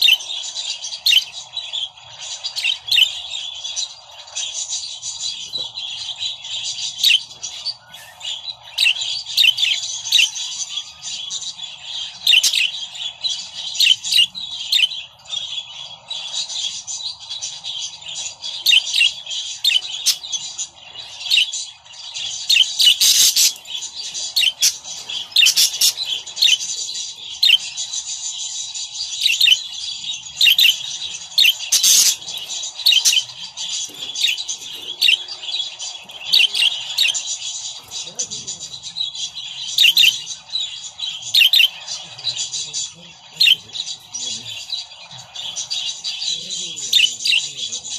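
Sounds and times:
budgerigars chattering and warbling: 0:00.0 - 0:47.9
harsh bird squawks: 0:31.4 - 0:33.3.

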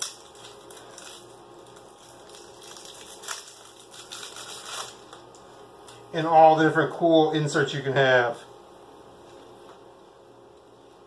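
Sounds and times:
plastic packaging crinkling: 0:00.0 - 0:05.4.

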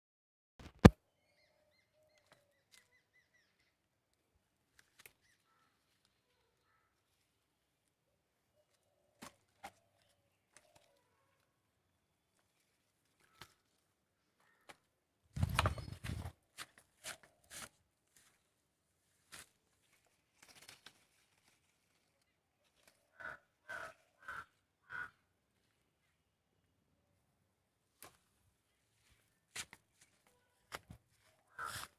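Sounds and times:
rustling and crunching leaves: 0:19.2 - 0:23.0.

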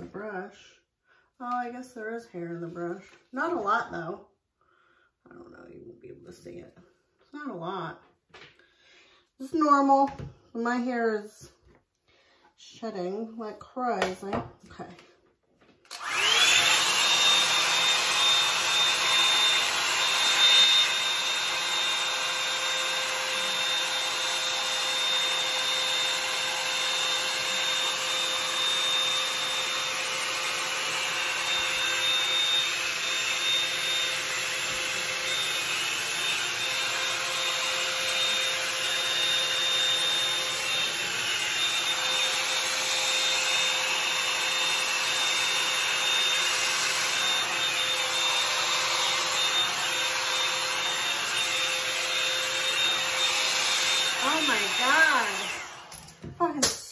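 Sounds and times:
hot-air brush whining and blowing: 0:00.0 - 0:00.6, 0:15.8 - 0:56.8.

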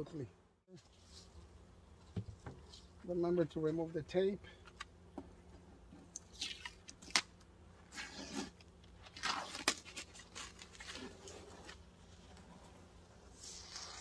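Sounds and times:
tape ripping off wood: 0:06.2 - 0:11.8.

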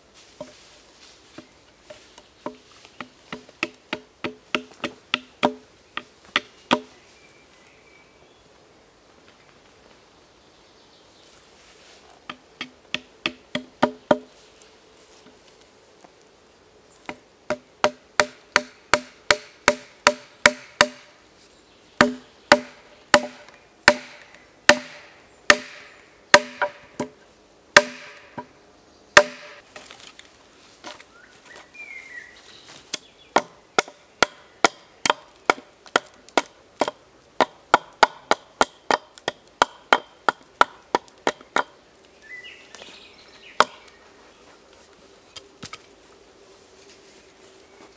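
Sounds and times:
hatchet chopping wood: 0:02.4 - 0:06.9, 0:12.3 - 0:14.3, 0:17.0 - 0:21.1, 0:22.0 - 0:27.2, 0:27.8 - 0:28.5, 0:29.2 - 0:29.6, 0:32.9 - 0:41.8, 0:43.6 - 0:43.8.

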